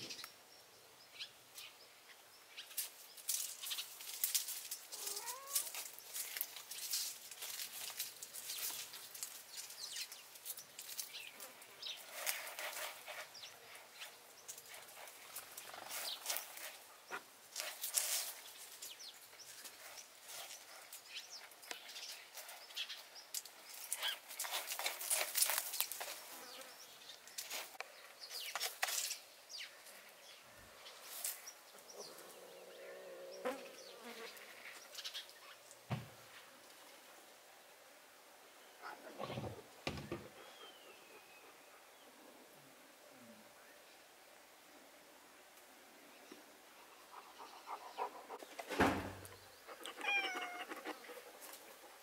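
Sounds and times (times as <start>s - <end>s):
kitten scratching litter sand: 12.0s - 16.9s, 17.5s - 19.0s, 23.7s - 26.4s.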